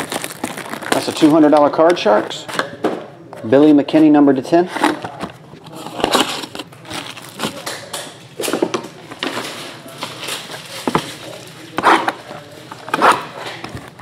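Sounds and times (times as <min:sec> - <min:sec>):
plastic wrap crinkling: 0:00.0 - 0:02.6, 0:04.9 - 0:14.0.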